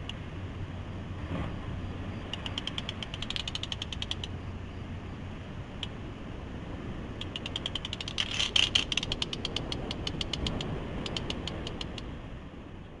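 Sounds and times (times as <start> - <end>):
rapid sharp high clicks: 2.3 - 4.4, 7.2 - 12.1.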